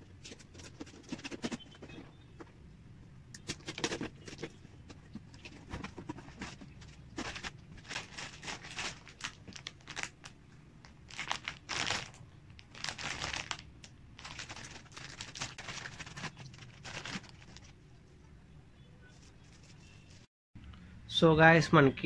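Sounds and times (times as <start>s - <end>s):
packaging crinkling and tearing: 5.3s - 17.8s.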